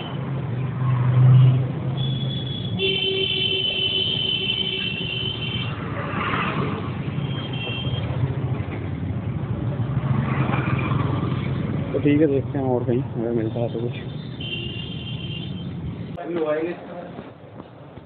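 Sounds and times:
vehicle horn: 2.0s - 5.8s, 14.4s - 15.8s.

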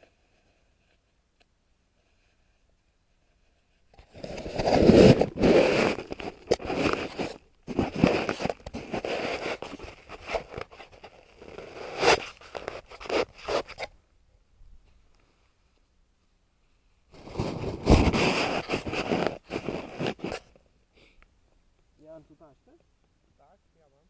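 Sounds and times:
rustling and scraping of handled objects: 0.0s - 14.0s, 16.6s - 20.7s.

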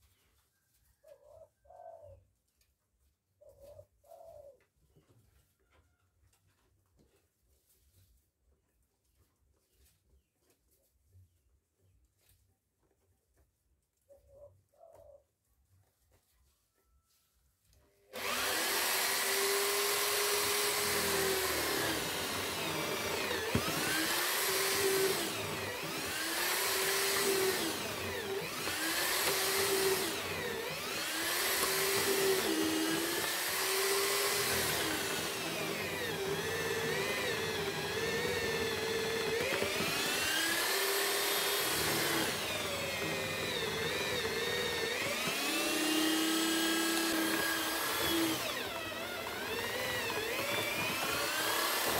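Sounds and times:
electric drill boring wood: 18.1s - 51.9s.

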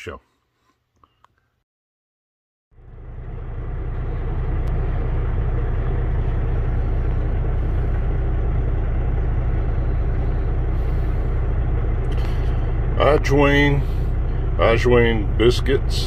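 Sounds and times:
diesel truck engine idling: 2.8s - 16.0s.

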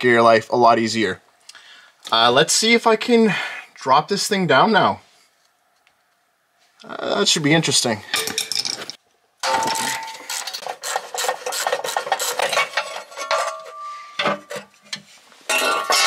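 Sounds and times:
metal pan scraping and clattering: 9.4s - 16.0s.

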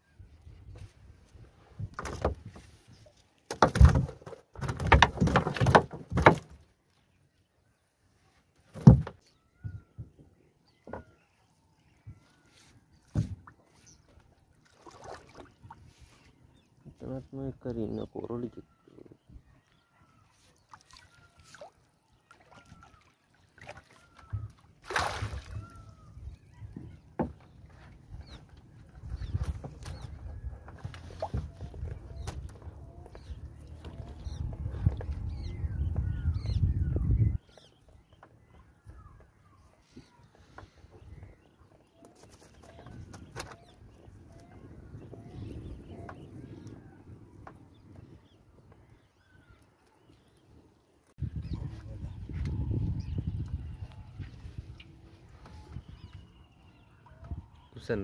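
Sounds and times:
water dripping and splashing: 20.7s - 25.8s
loud splash: 24.8s - 25.6s.

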